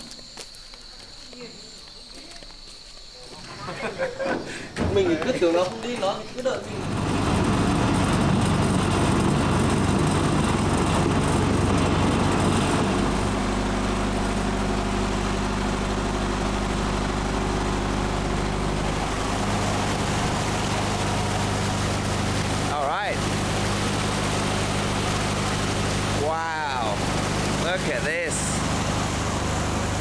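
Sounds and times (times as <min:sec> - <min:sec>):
boat engine droning: 0:06.6 - 0:30.0.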